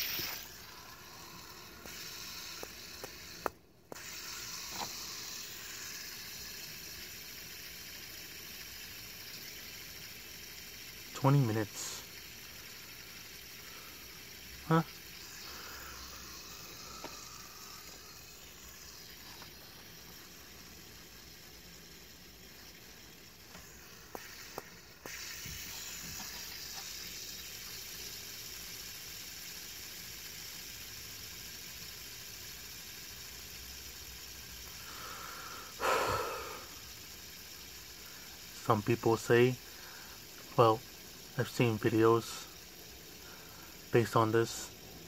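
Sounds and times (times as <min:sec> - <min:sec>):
fidget spinner whirring: 0:00.0 - 0:45.0.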